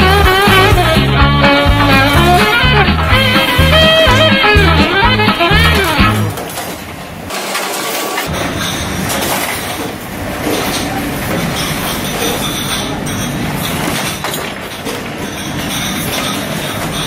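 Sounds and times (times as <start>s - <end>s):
dishwashing machinery running: 0.0s - 17.0s
dishes clattering: 7.5s - 17.0s.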